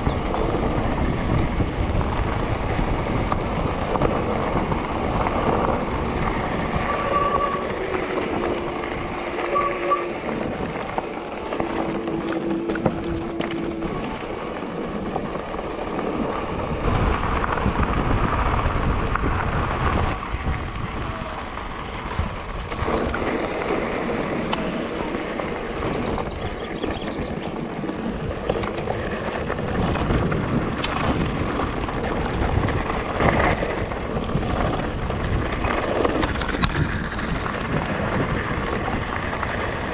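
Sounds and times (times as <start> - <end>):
wind rushing over microphone: 0.0 - 39.9
bike knocks and rattles: 22.6 - 39.9.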